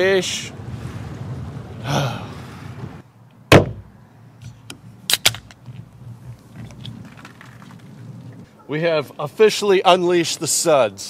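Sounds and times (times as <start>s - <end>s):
wind: 0.0s - 11.0s
sharp knock: 3.5s - 3.8s.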